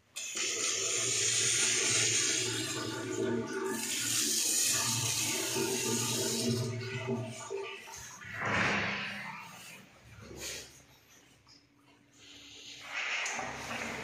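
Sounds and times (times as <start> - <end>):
water running into a washbasin: 0.0 - 10.7.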